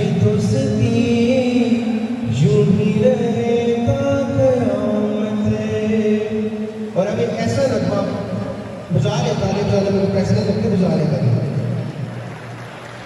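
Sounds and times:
man singing into microphone: 0:00.0 - 0:08.0.

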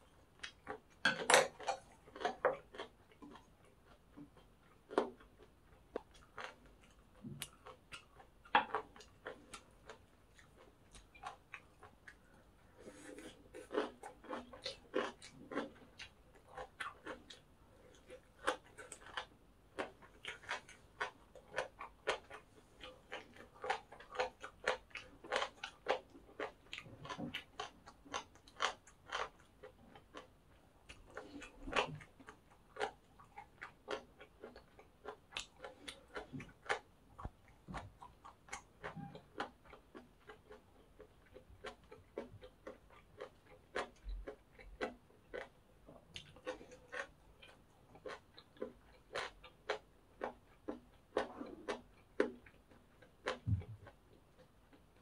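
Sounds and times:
chewing crunchy food: 0:00.0 - 0:55.0.

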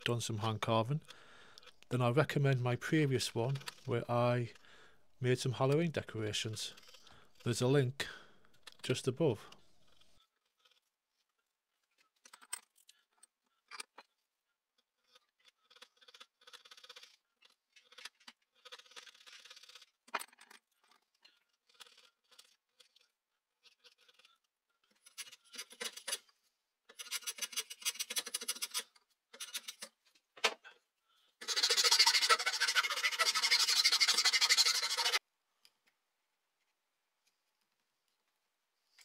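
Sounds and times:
chisel scraping wood: 0:26.9 - 0:29.9, 0:31.4 - 0:35.2
block plane shaving wood: 0:31.4 - 0:35.2.

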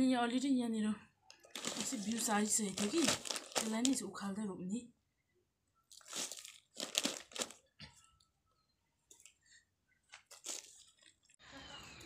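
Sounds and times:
plastic crinkling: 0:01.4 - 0:04.2, 0:05.9 - 0:07.8, 0:10.0 - 0:11.4.

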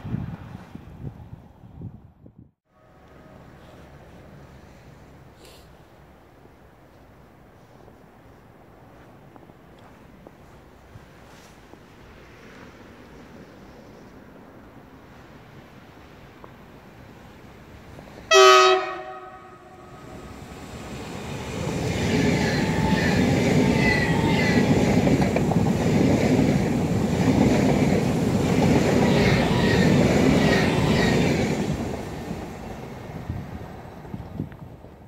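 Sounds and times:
train horn blast: 0:02.7 - 0:04.3, 0:18.3 - 0:20.6, 0:22.1 - 0:25.0
train passing at speed: 0:02.7 - 0:35.0
wheels clicking over rail joints: 0:20.1 - 0:35.0.

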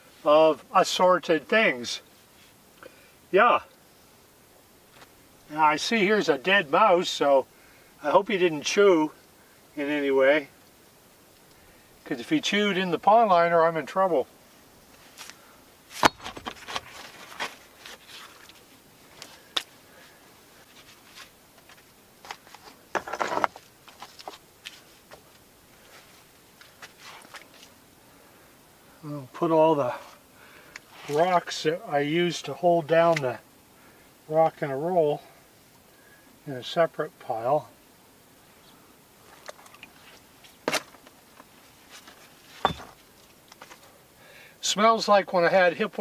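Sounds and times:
small ticks: 0:10.6 - 0:11.6
stones clicking and knocking: 0:22.3 - 0:24.4, 0:42.6 - 0:43.8
rough stone scrape: 0:22.5 - 0:23.6, 0:42.5 - 0:43.0.

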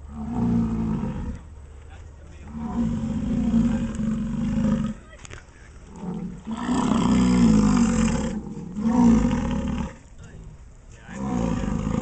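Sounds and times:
bison bellowing: 0:02.4 - 0:05.0, 0:05.9 - 0:10.0, 0:11.1 - 0:12.0.

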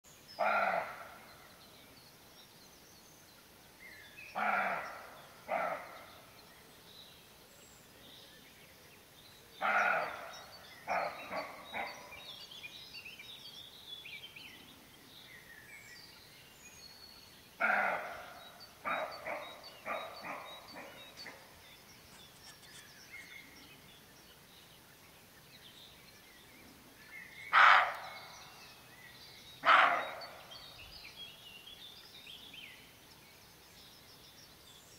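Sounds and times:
faint birdsong: 0:00.0 - 0:34.9
deer barking: 0:00.4 - 0:01.1, 0:04.4 - 0:05.9, 0:09.6 - 0:10.3, 0:17.6 - 0:21.4, 0:27.5 - 0:28.2, 0:29.6 - 0:30.4.

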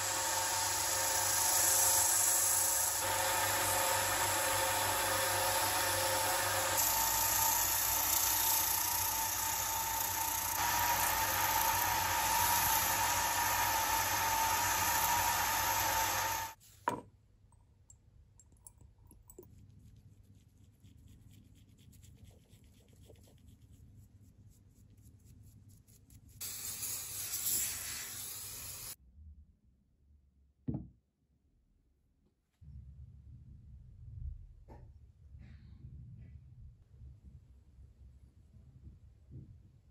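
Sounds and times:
metal lathe humming: 0:00.0 - 0:16.6
knock: 0:30.7 - 0:31.0.

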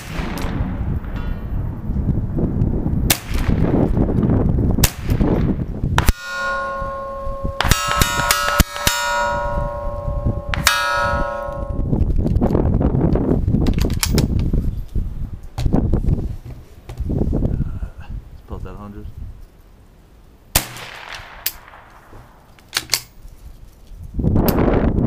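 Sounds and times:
rifle shots: 0:00.0 - 0:01.3, 0:03.1 - 0:03.8, 0:04.8 - 0:09.8, 0:20.6 - 0:23.0
steel target plate clanging: 0:06.0 - 0:11.9.

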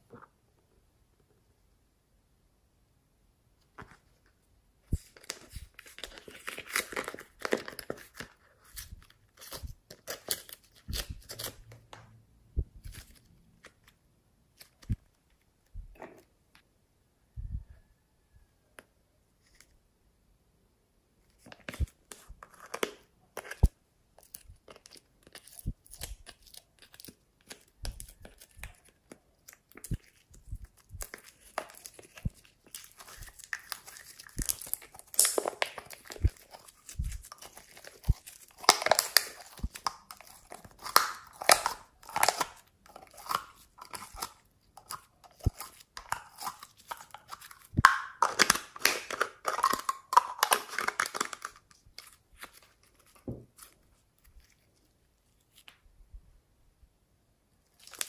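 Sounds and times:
slime crackling: 0:24.2 - 0:52.6.

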